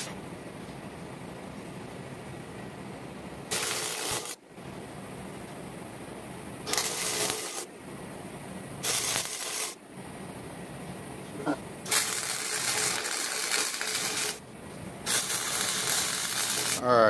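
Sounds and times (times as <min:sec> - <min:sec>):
welder crackling and sizzling: 0:00.0 - 0:00.2, 0:03.4 - 0:05.7, 0:06.4 - 0:10.4, 0:11.3 - 0:17.0.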